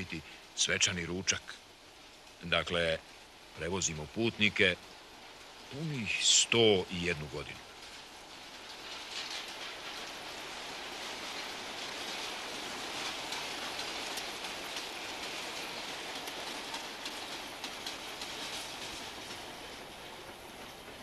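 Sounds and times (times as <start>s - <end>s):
train wheels on rails: 0.0s - 21.0s
faint ticks: 11.0s - 21.0s.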